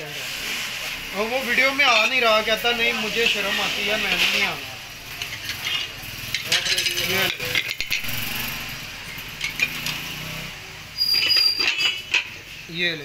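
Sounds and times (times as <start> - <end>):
plastic wrapping rustling: 0.0 - 7.9
crockery clinking and knocking: 4.1 - 10.3, 11.0 - 12.6.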